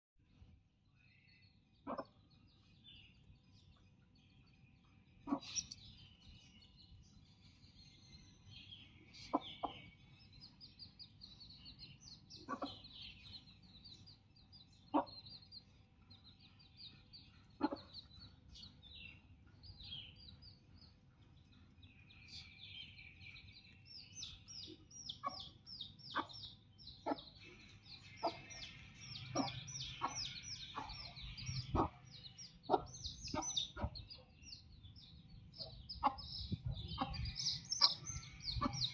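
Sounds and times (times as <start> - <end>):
chicks peeping: 1.4 - 38.9
hen clucking: 1.8 - 2.3, 5.2 - 5.9, 9.2 - 10.0, 11.6 - 13.9, 14.7 - 21.0, 24.0 - 34.3, 35.5 - 38.9.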